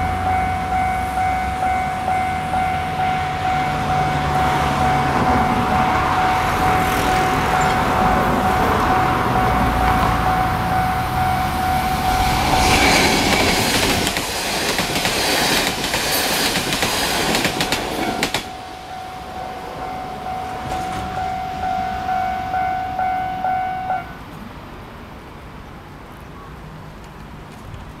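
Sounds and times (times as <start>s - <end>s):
level crossing bell ringing: 0.0s - 12.6s, 17.6s - 24.1s
train wheels clattering on rails: 0.0s - 22.2s.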